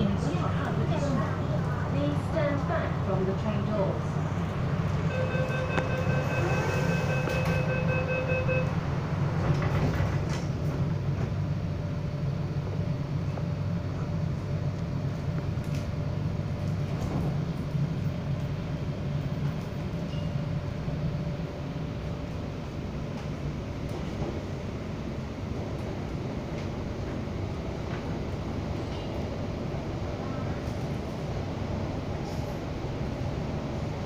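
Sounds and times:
train running low rumble: 0:00.0 - 0:34.0
door-closing warning beeps: 0:05.1 - 0:08.8.

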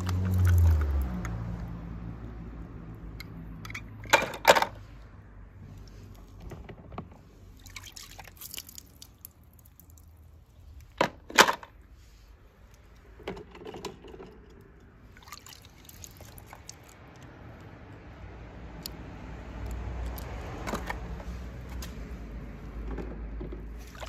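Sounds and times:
water sloshing and dripping: 0:00.0 - 0:01.7, 0:07.2 - 0:11.0, 0:14.8 - 0:17.8, 0:22.9 - 0:24.0.

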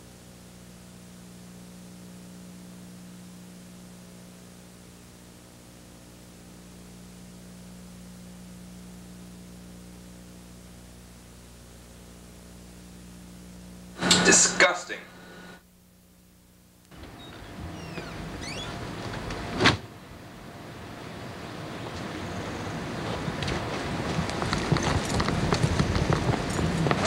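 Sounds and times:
steady hiss: 0:00.0 - 0:15.7
low electrical hum: 0:00.0 - 0:27.0.

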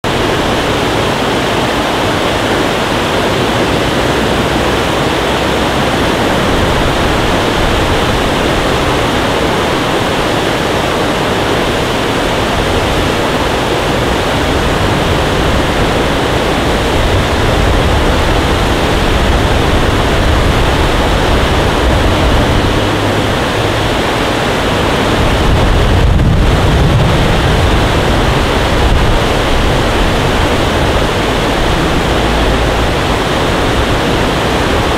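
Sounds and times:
water rushing over rocks: 0:00.0 - 0:34.9
low rumble: 0:11.5 - 0:34.9.

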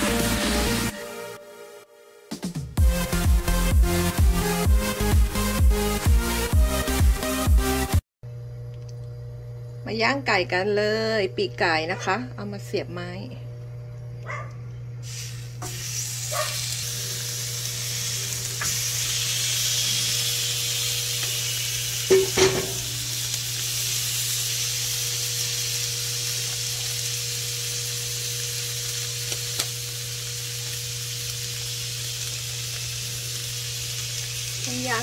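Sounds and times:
steady low hum: 0:08.3 - 0:31.6
chicken sizzling on grill: 0:15.0 - 0:35.0.

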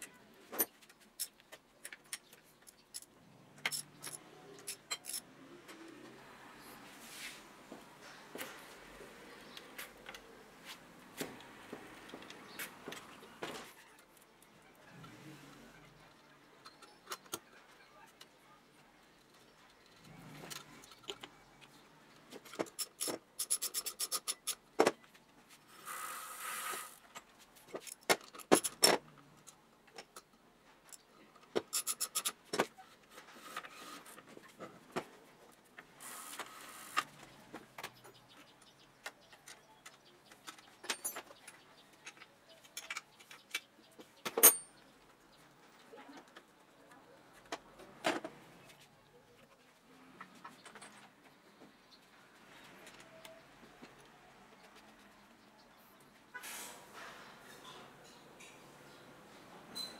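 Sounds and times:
metal tools clinking: 0:02.1 - 0:05.4, 0:44.4 - 0:44.8.

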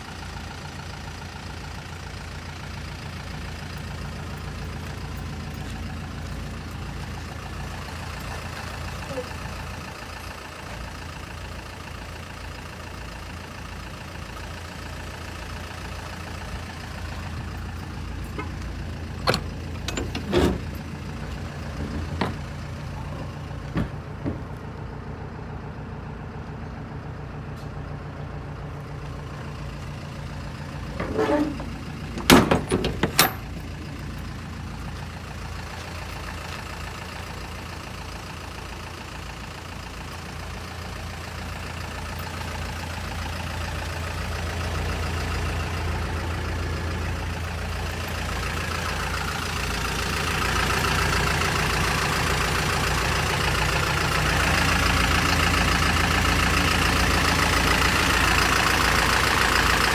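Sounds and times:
truck engine idling: 0:00.0 - 0:59.9
metal doors and latches clanking: 0:17.4 - 0:22.7, 0:30.8 - 0:33.8.

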